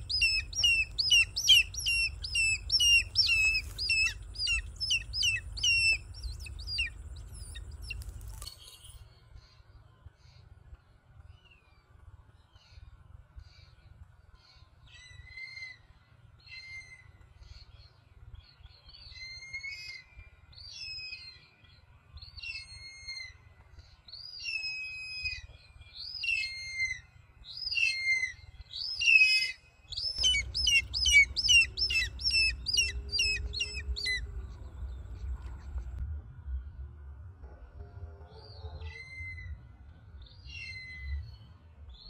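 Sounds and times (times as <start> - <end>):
hawk-eagle calling: 0.0 - 8.1, 28.9 - 34.3
low rumble: 0.0 - 8.4, 30.1 - 42.0.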